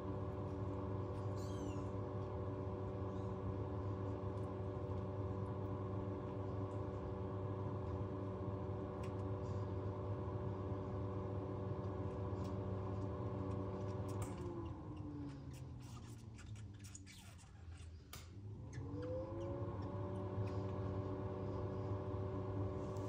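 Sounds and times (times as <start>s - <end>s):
ventilation fan humming: 0.0s - 23.0s.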